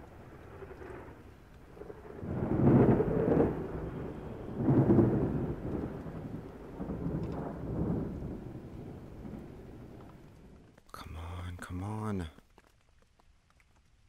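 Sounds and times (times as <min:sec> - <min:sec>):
thunder rumbling: 0:00.0 - 0:10.8
rain: 0:00.0 - 0:14.0.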